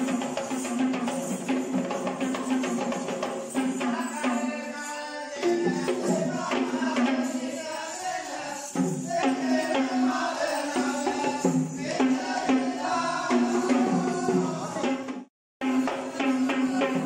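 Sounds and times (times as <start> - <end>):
quick drumming: 0.0 - 4.5, 8.6 - 17.0.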